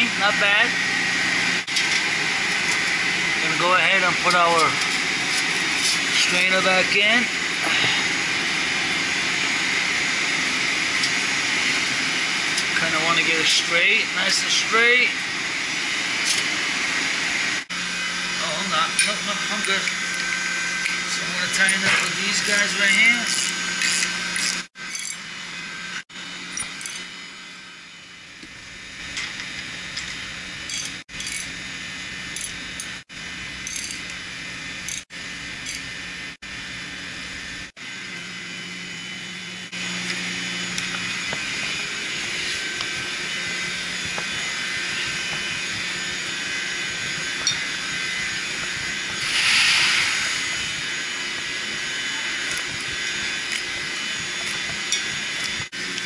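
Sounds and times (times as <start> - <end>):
ratchet wrench clicking: 23.4 - 25.2, 26.6 - 27.0, 30.7 - 31.5, 33.6 - 34.2, 35.6 - 35.9
metal clinking: 24.9 - 25.2, 26.5 - 27.1, 30.7 - 31.6, 33.6 - 34.2.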